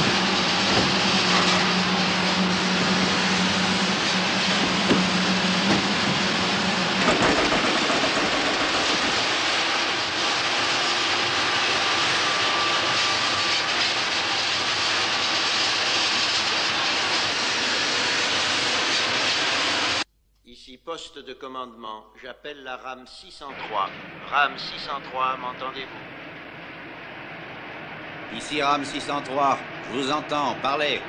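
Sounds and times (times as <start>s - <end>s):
train rushing through tunnel: 0.0s - 20.0s, 23.4s - 26.4s, 27.1s - 31.0s
low hum: 0.0s - 20.1s.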